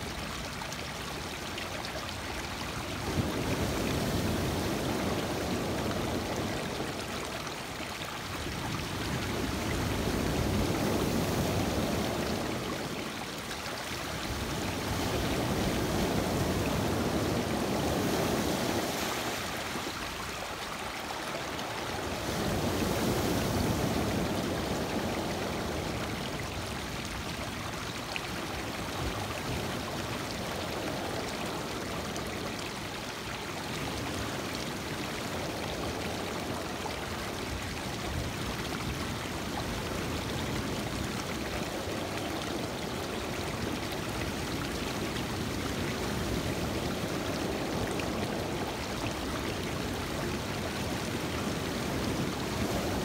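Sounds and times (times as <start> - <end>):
waves washing over rocky shore: 14.0 - 27.2.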